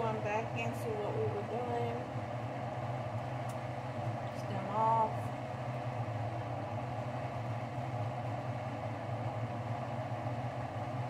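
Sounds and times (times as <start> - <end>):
machine humming: 0.0 - 11.0.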